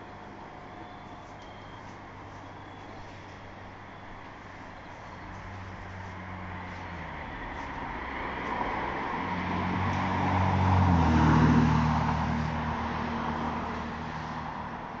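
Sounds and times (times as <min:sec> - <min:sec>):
car passing by: 0:05.4 - 0:15.0.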